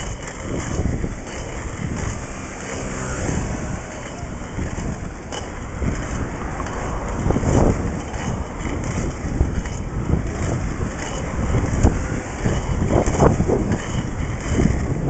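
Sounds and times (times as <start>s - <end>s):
skate wheels rolling on asphalt: 0.0s - 15.0s
wind buffeting the microphone: 0.0s - 15.0s.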